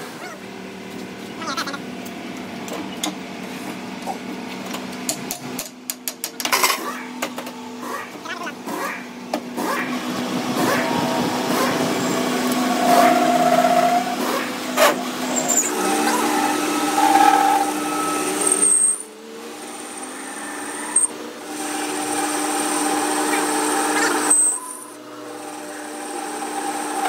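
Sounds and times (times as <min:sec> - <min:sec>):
metal lathe cutting: 0:09.6 - 0:27.0.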